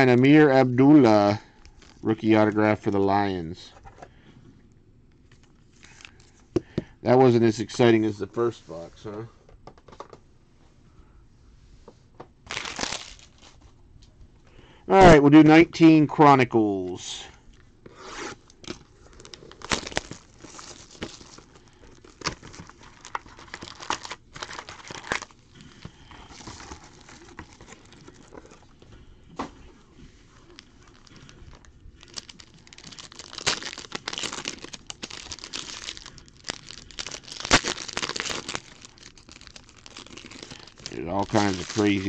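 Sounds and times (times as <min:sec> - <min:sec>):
foil packs crinkling and tearing: 0:12.4 - 0:13.6, 0:18.0 - 0:28.8, 0:30.4 - 0:42.0.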